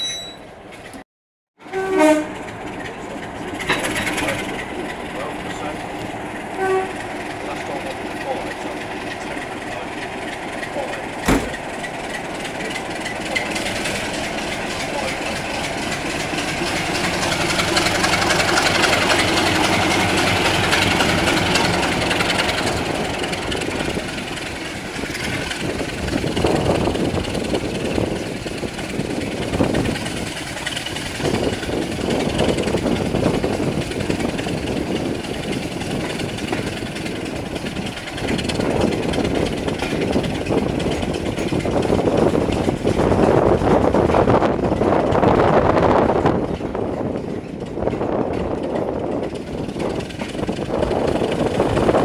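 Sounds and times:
train coaches rumbling on track: 0.0s - 1.0s, 1.6s - 52.0s
diesel engine drone: 1.6s - 52.0s
wind buffeting microphone: 11.4s - 52.0s.

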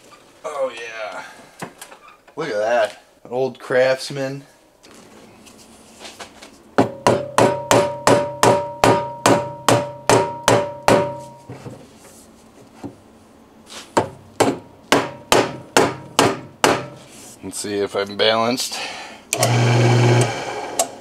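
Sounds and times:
mallet striking wood: 6.8s - 11.4s, 14.0s - 17.0s.

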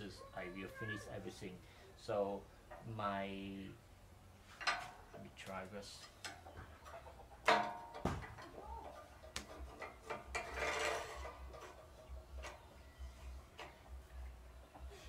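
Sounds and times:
metal sliding scrape: 9.5s - 12.1s.

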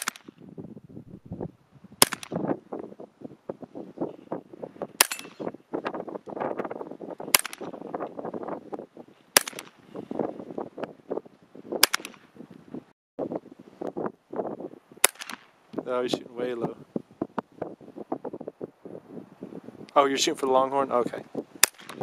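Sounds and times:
gunshots: 0.0s - 0.3s, 2.0s - 2.4s, 5.0s - 5.5s, 7.3s - 7.8s, 9.4s - 9.8s, 11.8s - 12.2s, 15.0s - 15.5s.

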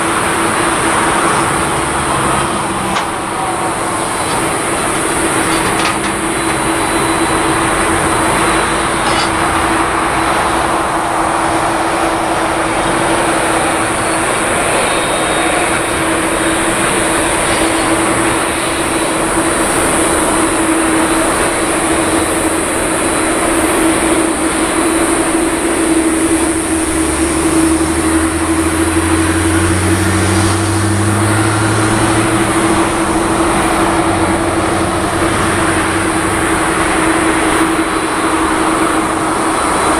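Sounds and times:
jet engines roaring: 0.0s - 39.9s.

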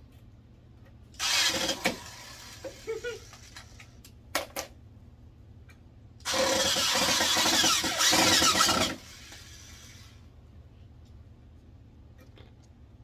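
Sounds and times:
electric drill running into wood: 1.2s - 2.8s, 6.3s - 10.1s.

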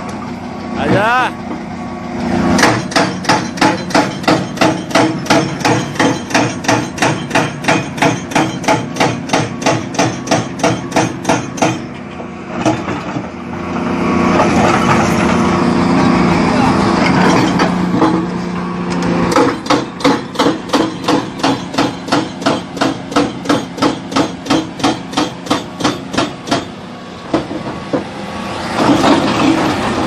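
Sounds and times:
diesel engine drone: 0.0s - 30.0s
excavator metallic clanks: 2.5s - 30.0s.

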